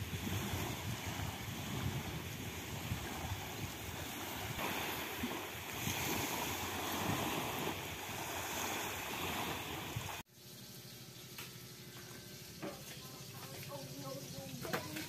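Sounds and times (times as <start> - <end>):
wind rumbling on microphone: 0.0 - 10.2
small waves lapping on pebbles: 0.0 - 10.3.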